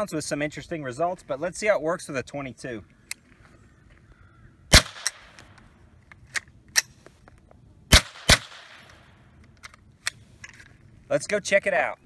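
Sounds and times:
rifle shots cracking: 4.7 - 5.6, 7.9 - 9.1.

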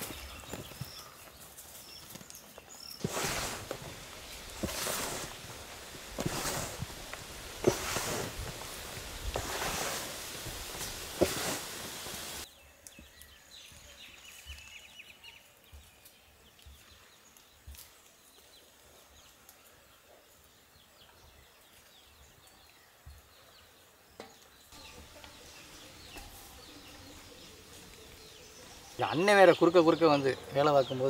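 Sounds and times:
birds chirping: 0.0 - 31.0
loud rustling noise: 3.0 - 12.5.

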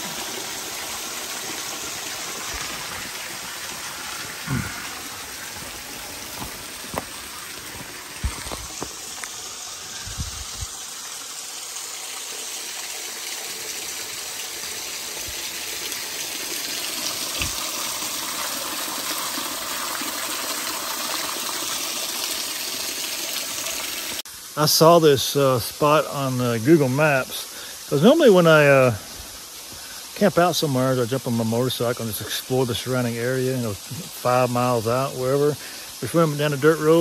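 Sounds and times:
waterfall splashing onto rock: 0.0 - 24.2.

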